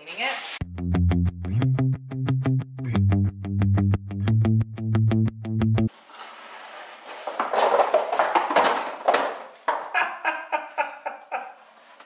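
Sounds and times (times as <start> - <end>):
egg cartons rustling and scraping: 6.0 - 9.1.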